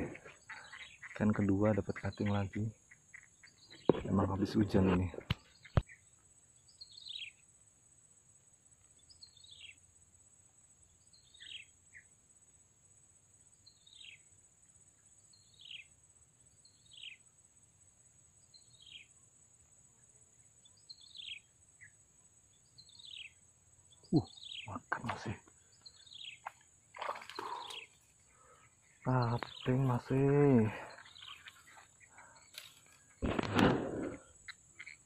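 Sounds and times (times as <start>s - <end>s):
bird calling faintly: 24.0s - 35.0s.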